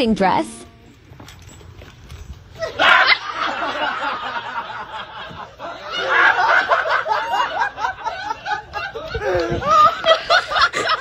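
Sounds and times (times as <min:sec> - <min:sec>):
people laughing and snickering: 0:02.5 - 0:11.0.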